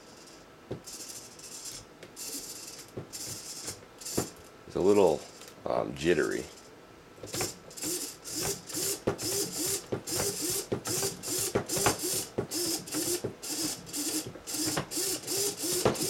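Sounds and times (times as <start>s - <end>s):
servo motor gears whirring: 0.8s - 4.4s, 7.3s - 16.0s
servo clicks: 7.3s - 16.0s.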